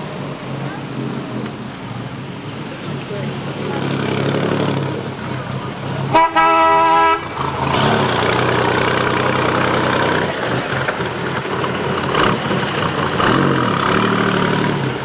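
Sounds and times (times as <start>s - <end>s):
race car engine idling: 0.0s - 15.0s.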